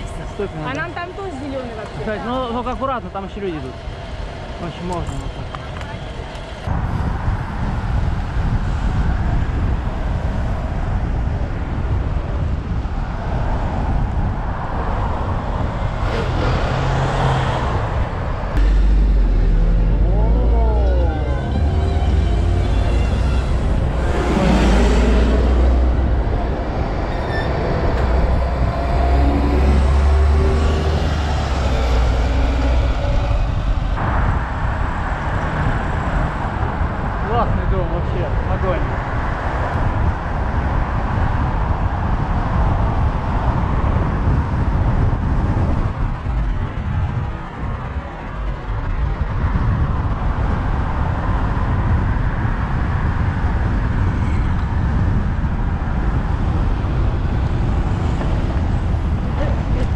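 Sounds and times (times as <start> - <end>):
passing vehicle: 0.0 - 59.9
road traffic: 0.0 - 59.9
wind rushing over microphone: 0.0 - 59.9.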